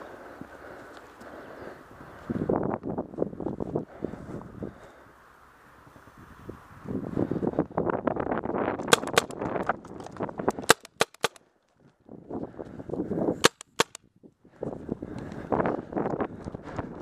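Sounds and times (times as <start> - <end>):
paintball marker pops: 8.8 - 9.4, 10.0 - 11.4, 13.4 - 14.0.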